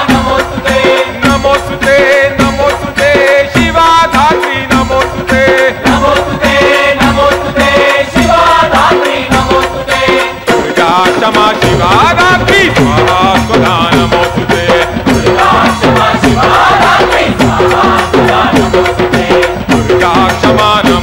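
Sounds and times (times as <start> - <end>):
fast percussion beat with rattles: 0.0 - 21.0
voices chanting: 5.3 - 10.9, 11.6 - 20.1.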